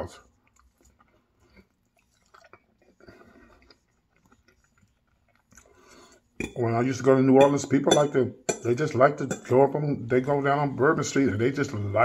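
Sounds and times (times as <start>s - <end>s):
chewing food: 0.0s - 6.6s.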